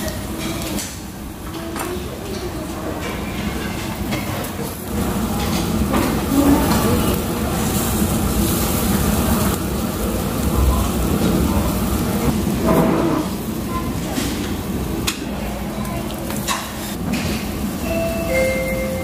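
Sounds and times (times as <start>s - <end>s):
low restaurant rumble: 0.0s - 19.0s.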